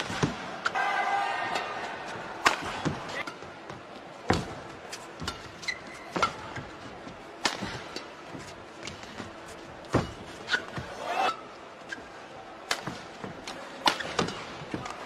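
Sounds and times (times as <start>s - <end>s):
hall background noise: 0.0s - 15.0s
racket striking shuttlecock: 2.4s - 3.4s, 13.8s - 14.9s
shoe squeaks on court: 5.6s - 6.1s.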